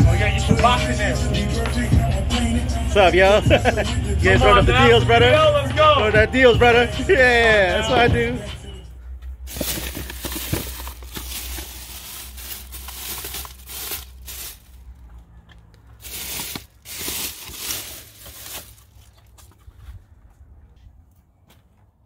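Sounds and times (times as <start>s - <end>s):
plastic bags crinkling and rustling: 9.5s - 14.8s, 16.0s - 19.4s.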